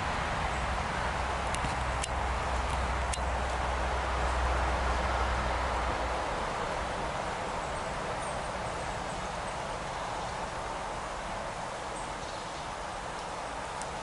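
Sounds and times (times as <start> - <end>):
stream water over gravel: 0.0 - 14.0.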